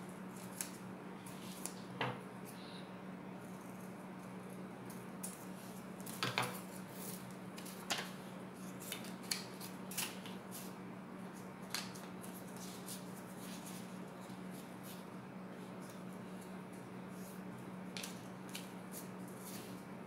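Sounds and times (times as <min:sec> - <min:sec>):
steady low hum: 0:00.0 - 0:20.0
scissors snipping paper: 0:08.8 - 0:10.7.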